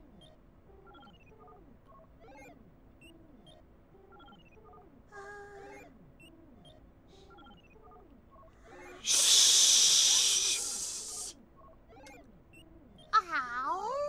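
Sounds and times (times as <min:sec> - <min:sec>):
voices shushing: 0:08.6 - 0:11.4.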